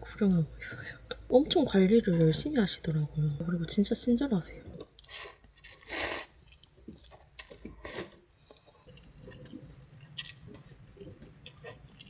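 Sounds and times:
soft chewing: 0:04.6 - 0:12.0
noodles slurping: 0:04.8 - 0:06.7, 0:07.8 - 0:12.0.

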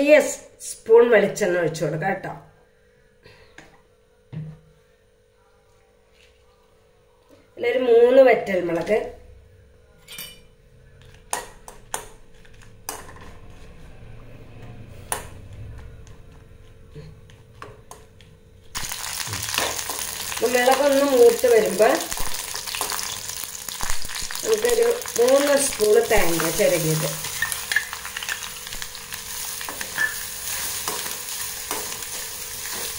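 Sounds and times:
chillies sizzling in oil: 0:18.7 - 0:32.9.

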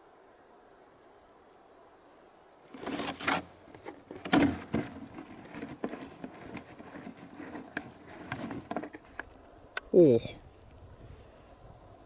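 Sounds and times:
irregular rustling: 0:02.6 - 0:09.6.

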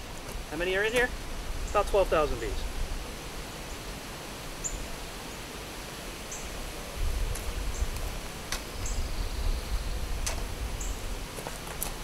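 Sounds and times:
outdoor background: 0:00.0 - 0:12.0.

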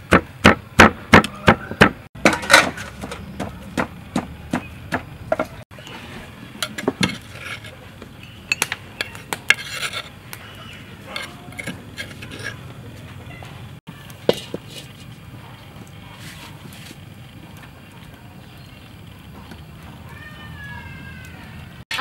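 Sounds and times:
metal spoon scraping and tapping: 0:06.6 - 0:10.1, 0:11.1 - 0:12.6.

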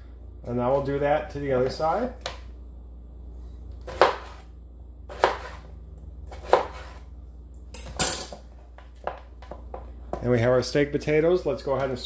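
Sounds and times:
knife chopping potato: 0:03.8 - 0:04.5, 0:05.1 - 0:05.7, 0:06.3 - 0:07.0
knife scraping cut: 0:05.1 - 0:05.7, 0:06.3 - 0:07.1.

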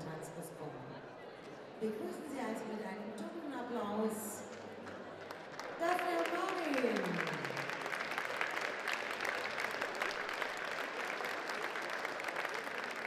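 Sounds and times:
audience applauding: 0:04.7 - 0:13.0.

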